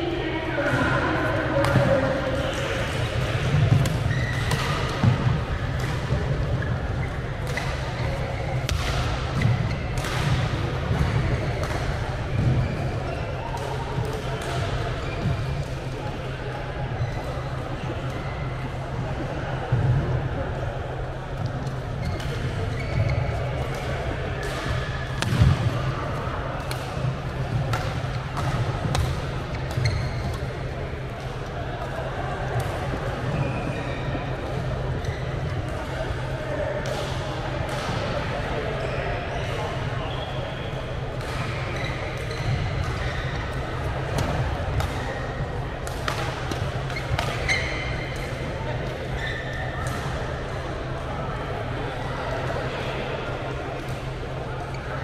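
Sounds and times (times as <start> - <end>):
hum and clatter of sports hall: 0.0 - 55.0
shoes squeaking on court: 3.7 - 10.0, 14.9 - 15.6, 21.6 - 23.9, 28.9 - 30.7, 46.4 - 48.4, 49.0 - 50.0
rackets striking shuttlecock: 26.6 - 30.4, 41.2 - 45.1, 45.8 - 48.3
racket hitting shuttlecock: 45.8 - 48.3.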